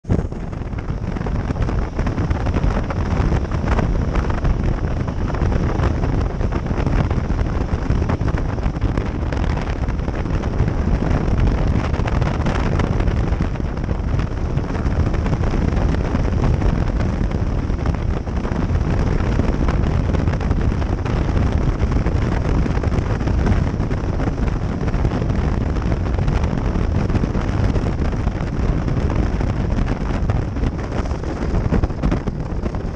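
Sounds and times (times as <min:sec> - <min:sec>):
road noise: 0:00.0 - 0:32.9
wind rush over microphone: 0:00.0 - 0:32.9.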